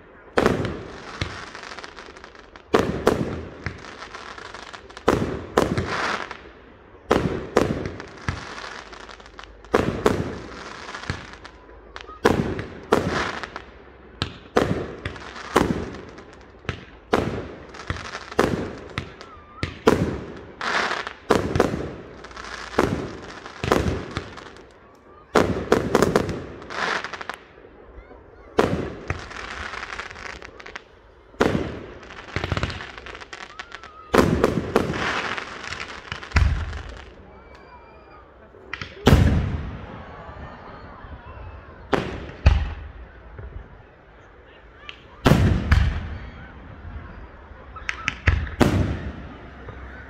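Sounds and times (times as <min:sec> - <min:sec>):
fireworks bursting with bangs: 0:00.0 - 0:41.0, 0:41.7 - 0:44.0, 0:44.8 - 0:50.0.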